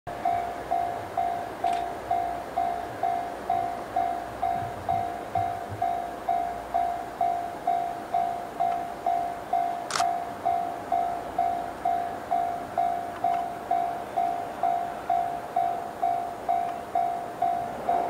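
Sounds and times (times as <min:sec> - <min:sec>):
faint low train rumble: 0:00.1 - 0:18.0
level-crossing warning bell ringing: 0:00.1 - 0:18.0.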